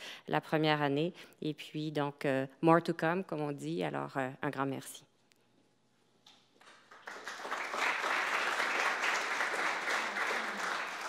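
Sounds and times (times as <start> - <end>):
audience applauding: 6.6 - 11.0.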